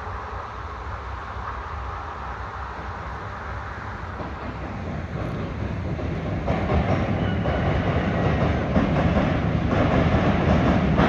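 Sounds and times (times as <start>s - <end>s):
freight train rumbling: 0.0s - 11.0s
wheels clattering over rail joints: 3.9s - 11.0s.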